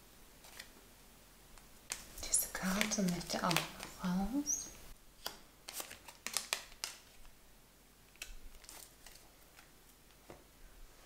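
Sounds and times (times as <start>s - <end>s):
cards being shuffled: 0.4s - 0.7s, 1.9s - 4.0s, 5.2s - 7.3s, 8.1s - 10.4s.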